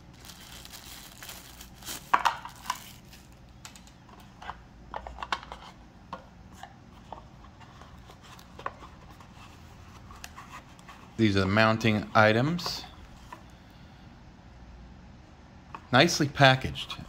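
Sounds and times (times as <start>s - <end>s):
plastic bag crinkling: 0.0s - 3.9s.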